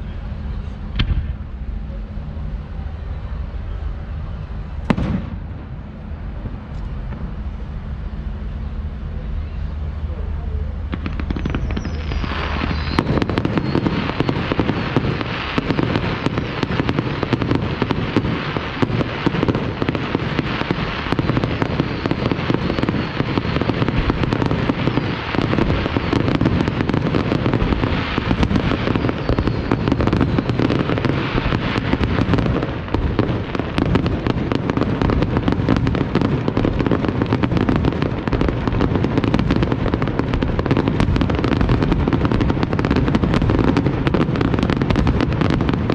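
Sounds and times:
firework crackling: 0:00.0 - 0:45.9
firework shell bursts: 0:10.9 - 0:17.0.

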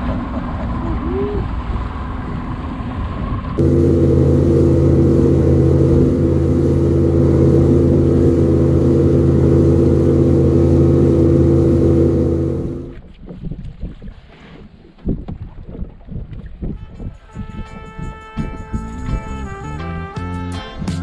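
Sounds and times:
wind: 0:00.0 - 0:20.1
boat motor droning: 0:03.6 - 0:13.0.

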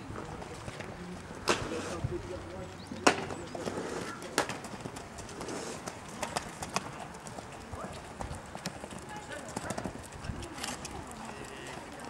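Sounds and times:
horse hoofbeats on sand: 0:03.2 - 0:12.0.

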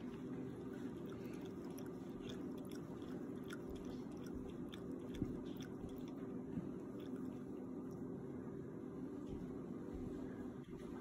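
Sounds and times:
cat lapping liquid: 0:00.0 - 0:08.1
steady low hum: 0:00.0 - 0:11.0.

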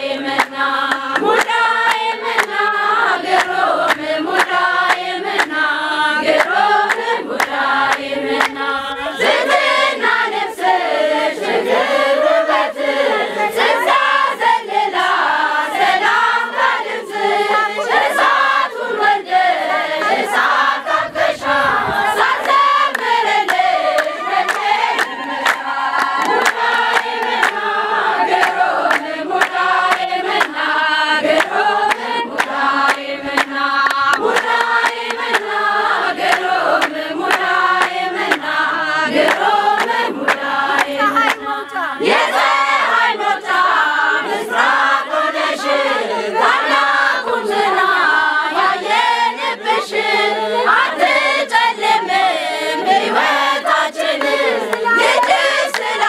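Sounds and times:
women singing a hymn together: 0:00.0 - 0:56.0.

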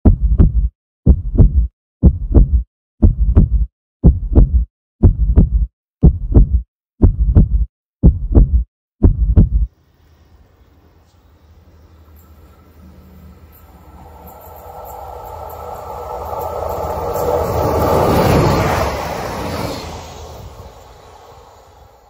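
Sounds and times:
heartbeat double beat: 0:00.0 - 0:09.7.

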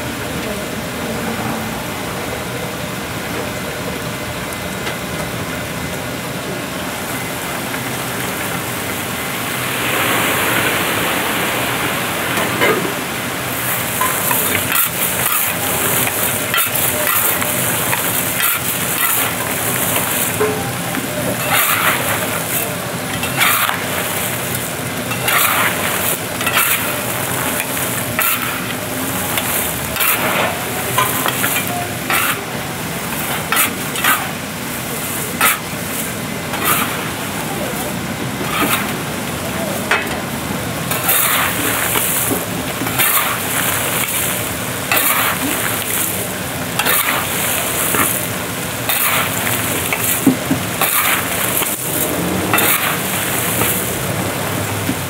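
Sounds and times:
syrup sizzling: 0:07.0 - 0:37.8, 0:38.4 - 0:55.0
chestnuts and stones churning in pan: 0:12.4 - 0:55.0
scoop scraping in pan: 0:21.3 - 0:22.6, 0:23.2 - 0:32.4, 0:36.6 - 0:37.0, 0:50.8 - 0:53.9.

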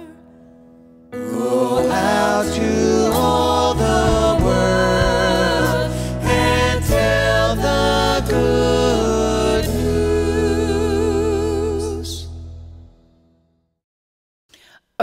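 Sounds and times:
piano: 0:00.0 - 0:13.6
vocalists singing with vibrato: 0:01.2 - 0:12.4
bass: 0:01.8 - 0:13.2.

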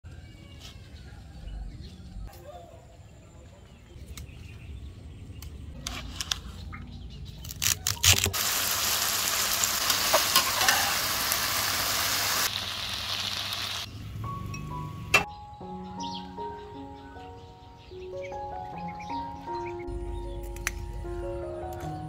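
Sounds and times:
food sizzling in a wok: 0:08.3 - 0:13.9
metal spatula clattering: 0:09.9 - 0:11.0.

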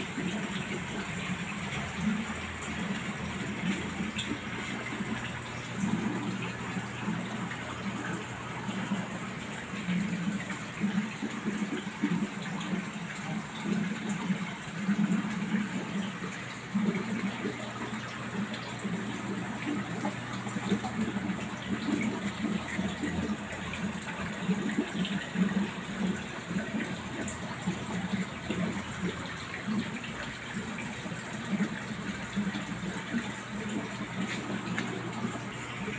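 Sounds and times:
aquarium water bubbling: 0:00.0 - 0:35.9.

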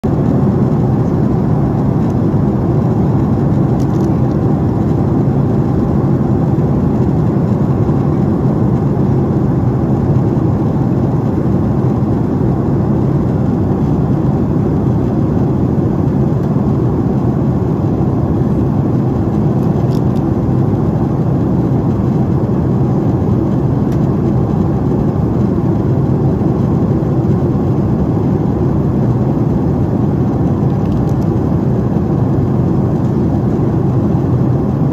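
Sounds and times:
airplane cabin rumble: 0:00.0 - 0:34.9.

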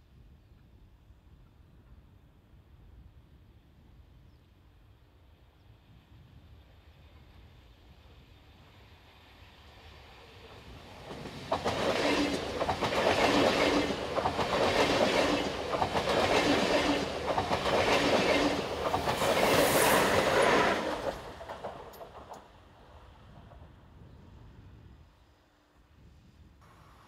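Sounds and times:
train wheels clickety-clack: 0:10.4 - 0:22.7.

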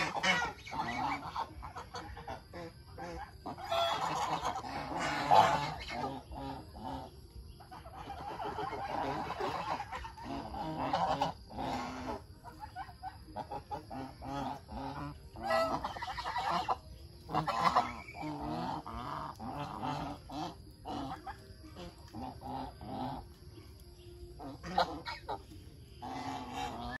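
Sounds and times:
geese honking: 0:00.0 - 0:27.0.

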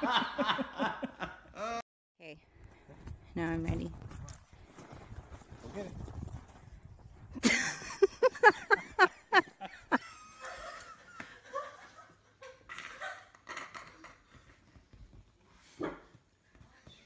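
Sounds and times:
person laughing hard: 0:07.4 - 0:14.0.

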